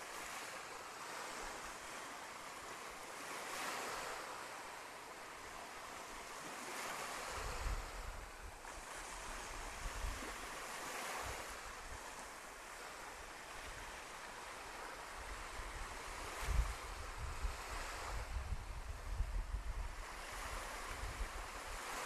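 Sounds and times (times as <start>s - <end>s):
small waves washing onto beach: 0.0s - 22.0s
wind buffeting the microphone: 5.9s - 12.9s, 14.8s - 22.0s.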